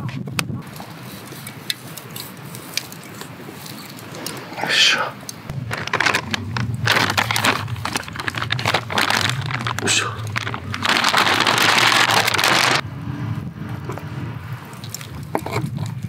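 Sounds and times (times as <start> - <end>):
plastic zipper bag crinkling: 5.5 - 12.8.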